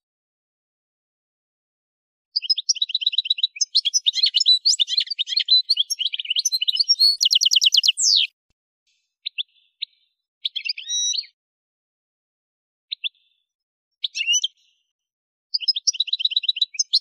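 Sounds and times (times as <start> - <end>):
bird chirps: 2.4 - 8.4, 9.2 - 11.4, 12.9 - 14.8, 15.5 - 17.0
bird twittering song: 2.4 - 8.4, 9.2 - 11.4, 12.9 - 14.8, 15.5 - 17.0.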